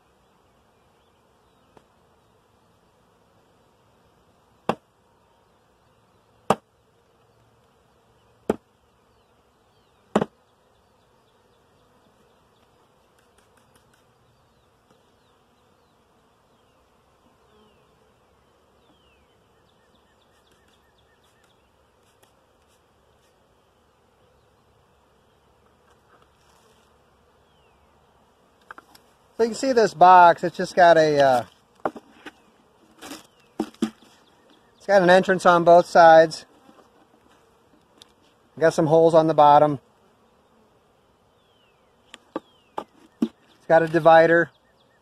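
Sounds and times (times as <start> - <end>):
bees buzzing: 0.0 - 45.0
wooden hive frames knocking: 4.6 - 4.9, 6.5 - 6.7, 8.4 - 8.7, 10.1 - 10.4, 30.5 - 34.6, 42.2 - 44.1.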